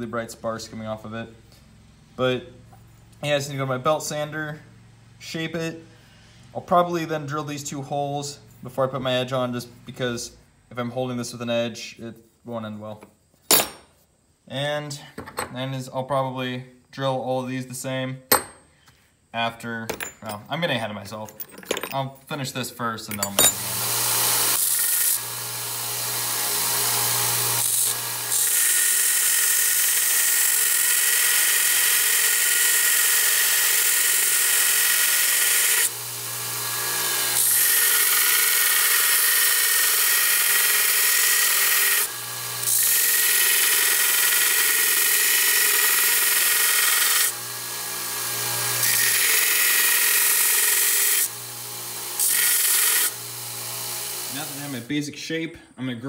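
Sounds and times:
belt sander grinding steel: 23.2 - 54.9
sander motor hum: 51.3 - 54.8.

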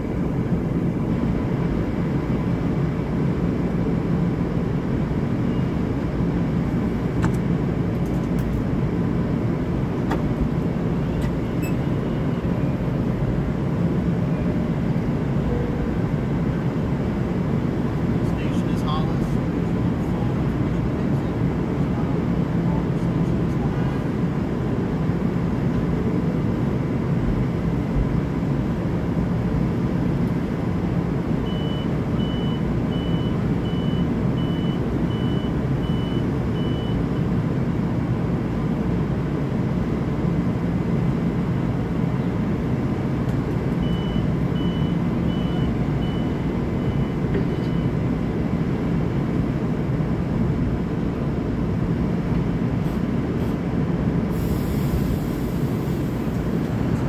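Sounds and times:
electric train humming: 54.3 - 57.0.

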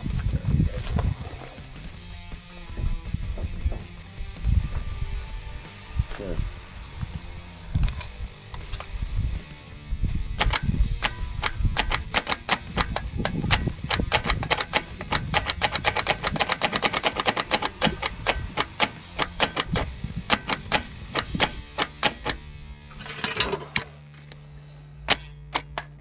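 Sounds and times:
rapid metallic clicking of hand tool: 10.4 - 22.4.

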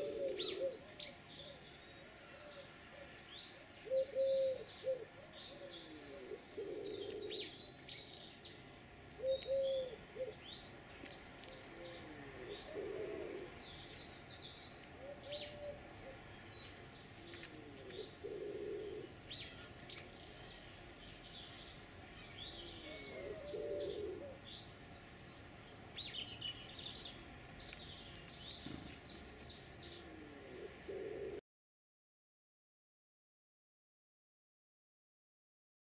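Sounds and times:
pigeon cooing: 0.0 - 1.7, 3.8 - 7.6, 9.2 - 10.4, 11.8 - 13.6, 15.0 - 16.2, 17.2 - 19.2, 22.6 - 24.4, 29.8 - 31.4
songbirds chirping and singing: 0.0 - 31.4.

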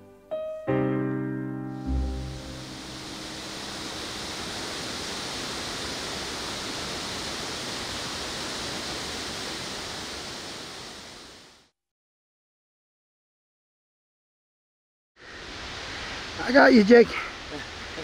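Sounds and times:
waterfall rushing over rocks: 1.8 - 11.7, 15.2 - 18.0.

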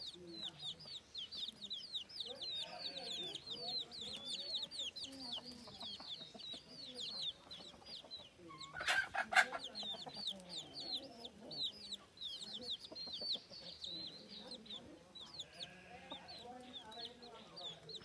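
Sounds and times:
chicks peeping: 0.0 - 18.0
hen clucking: 0.0 - 18.0.

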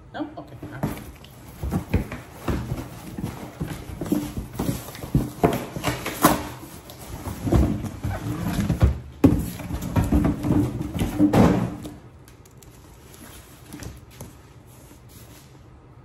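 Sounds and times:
cardboard box thumping and scraping: 0.8 - 12.0.

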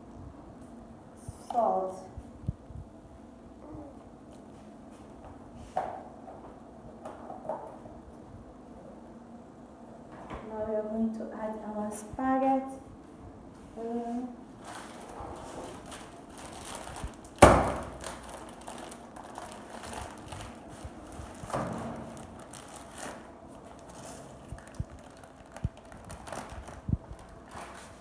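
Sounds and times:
plastic packet crinkling: 14.6 - 28.0.

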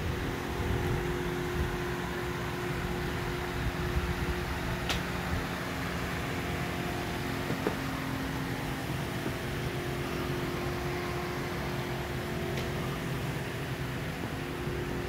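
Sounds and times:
faint steady tones: 0.0 - 15.0
mechanical room hum: 0.0 - 15.0
small click: 4.8 - 5.1.

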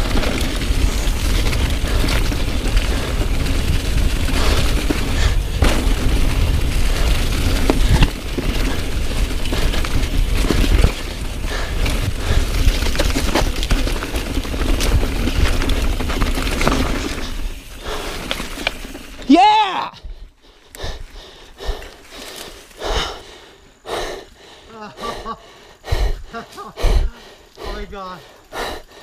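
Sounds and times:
wind buffeting microphone: 0.0 - 16.3
bike knocking and rattling: 0.0 - 19.3
tyres rolling over dirt and rocks: 0.0 - 19.7.

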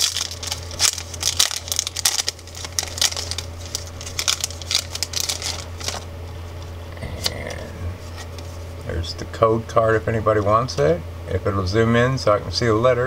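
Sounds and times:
foil wrapper crinkling and tearing: 0.0 - 6.7.

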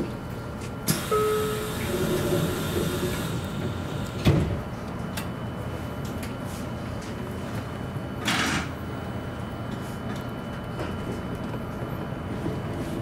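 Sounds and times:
train door hiss: 0.9 - 4.5
train doors thumping shut: 0.9 - 4.7
brief tone: 1.0 - 1.9.

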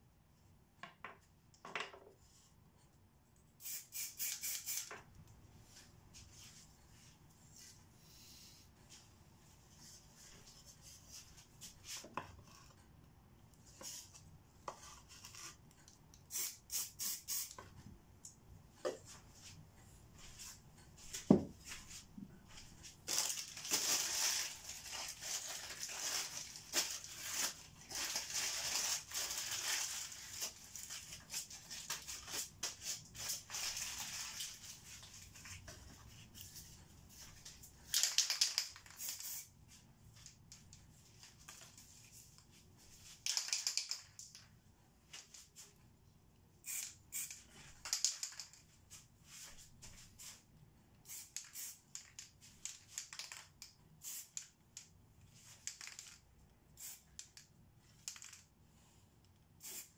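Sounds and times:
aerosol spray can hissing: 3.6 - 4.9, 16.3 - 17.6, 59.6 - 59.9
spray cans clicking and knocking: 37.9 - 39.4, 43.2 - 44.4, 46.7 - 48.6, 51.1 - 54.9, 55.6 - 56.2, 58.0 - 58.5.

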